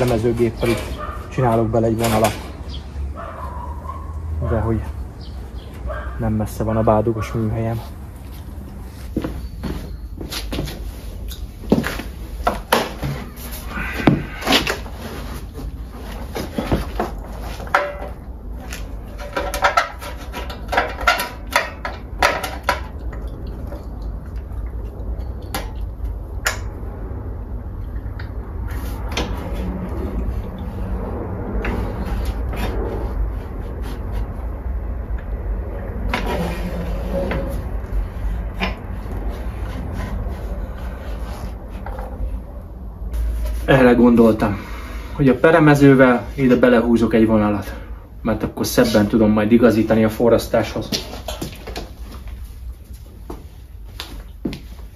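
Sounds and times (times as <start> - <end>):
sheet metal knocks and clanks: 16.8 - 18.2, 19.1 - 23.0.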